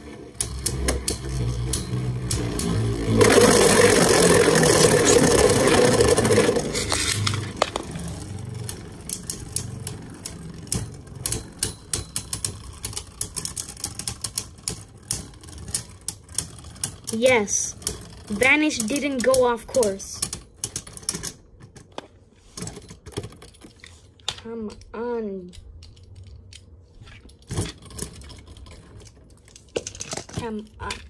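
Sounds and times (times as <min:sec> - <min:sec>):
spinning tops grinding scrape: 0:00.0 - 0:20.2
spinning tops clashing clicks: 0:00.4 - 0:20.1.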